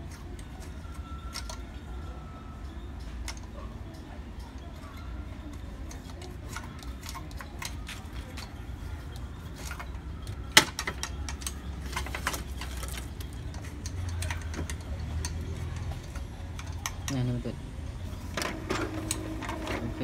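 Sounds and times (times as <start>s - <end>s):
printer mechanism clicking: 18.2s - 20.0s.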